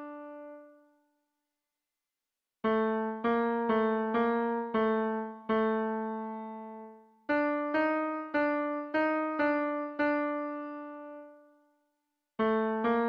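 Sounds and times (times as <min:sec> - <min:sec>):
piano music: 0:00.0 - 0:00.7, 0:02.7 - 0:11.4.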